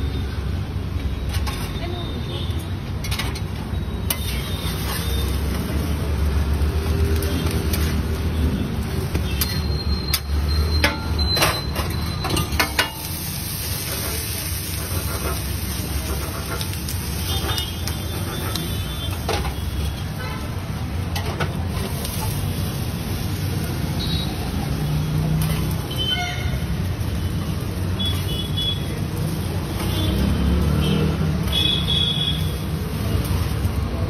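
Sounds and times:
metal spatula scraping griddle: 3.0s - 5.7s, 9.2s - 19.9s, 25.4s - 26.7s.

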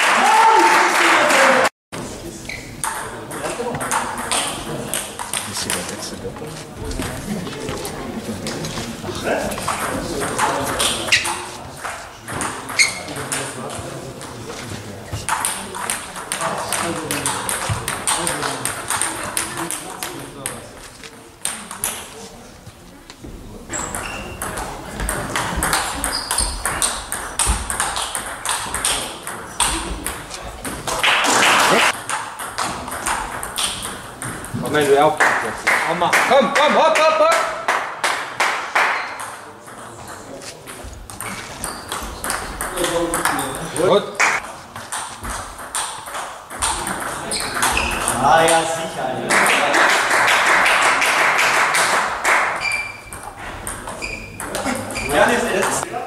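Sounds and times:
spectators clapping: 0.0s - 1.7s, 30.9s - 32.0s, 35.2s - 39.1s, 49.3s - 52.6s
ping pong ball clicking off bats: 2.8s - 5.9s, 15.2s - 20.6s, 21.4s - 22.1s, 23.9s - 31.0s, 31.8s - 34.6s, 41.1s - 48.6s, 52.6s - 54.9s
ball bouncing on table: 9.5s - 13.5s, 15.1s - 20.6s, 23.8s - 31.0s, 31.9s - 34.6s, 40.7s - 43.5s, 44.3s - 48.6s, 52.7s - 55.8s.

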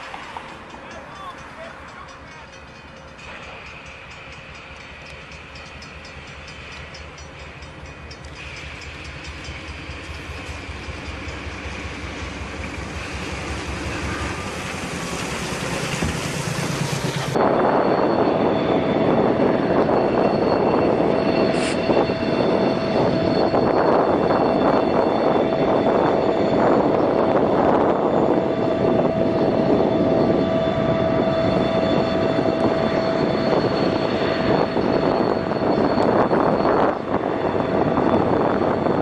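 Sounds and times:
diesel locomotive pushing snow plow: 0.0s - 39.0s.

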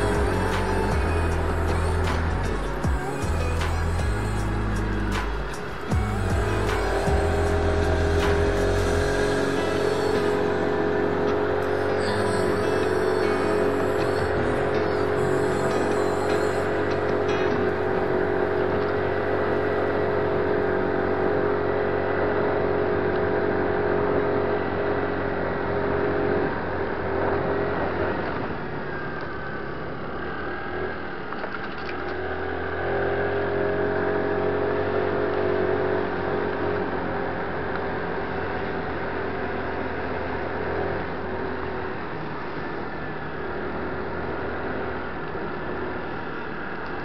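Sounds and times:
scooter engine running: 0.0s - 47.0s
wind and road noise: 0.0s - 47.0s.

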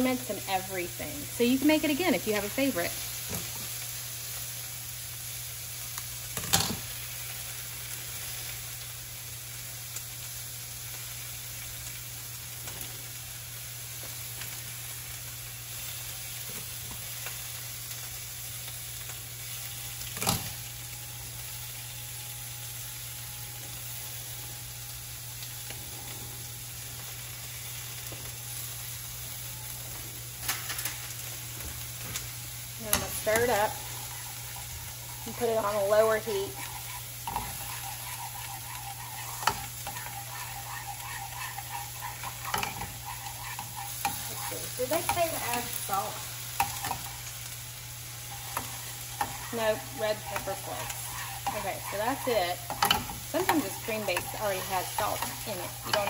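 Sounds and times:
food sizzling in a hot pan: 0.0s - 56.0s
low steady hum: 29.5s - 56.0s.

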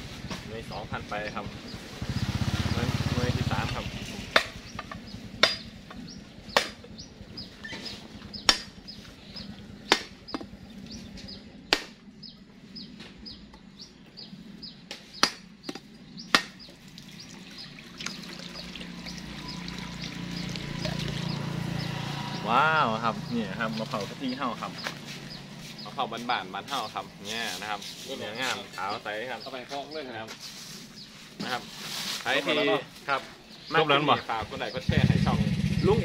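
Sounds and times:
birds chirping: 0.0s - 36.0s.

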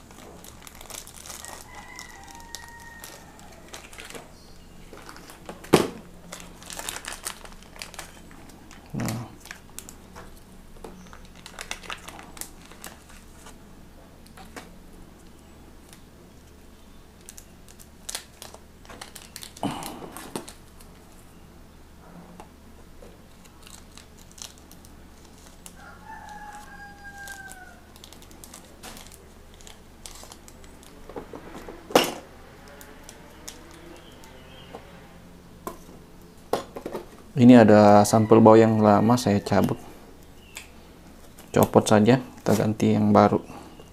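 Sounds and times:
faint rooster crowing: 1.2s - 4.4s, 25.6s - 28.2s, 37.5s - 40.1s.

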